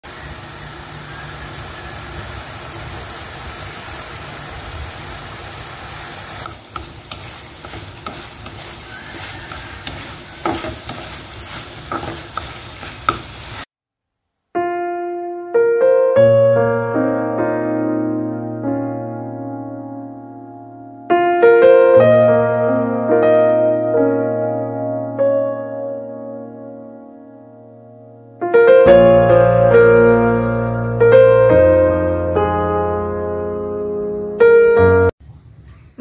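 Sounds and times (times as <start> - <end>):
meat sizzling in oil: 0.0 - 13.7
piano music: 6.4 - 13.2, 14.6 - 35.2
chopsticks clicking and scraping: 6.4 - 13.5.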